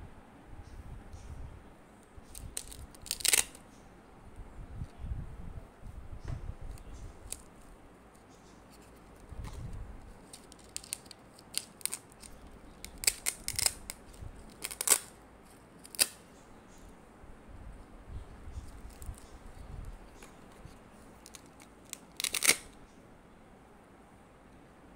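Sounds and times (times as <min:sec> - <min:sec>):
cards rasping and clicking: 0:02.2 - 0:03.6, 0:08.1 - 0:16.2, 0:20.1 - 0:22.8.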